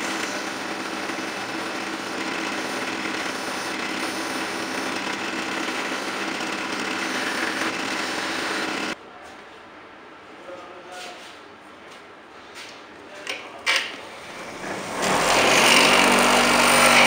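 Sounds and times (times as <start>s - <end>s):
drill press motor hum: 0.0s - 9.0s, 14.1s - 17.0s.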